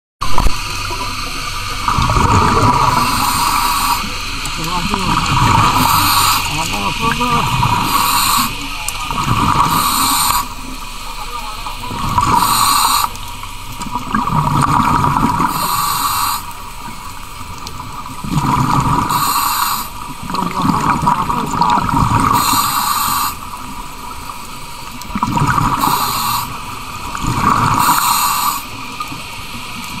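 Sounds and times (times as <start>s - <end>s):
exhaled bubbles rushing: 0.2s - 30.0s
diver breathing through regulator: 1.9s - 8.7s, 9.4s - 10.6s, 12.0s - 13.2s, 15.4s - 16.6s, 18.4s - 20.0s, 22.1s - 23.5s, 25.6s - 26.7s, 27.3s - 28.8s.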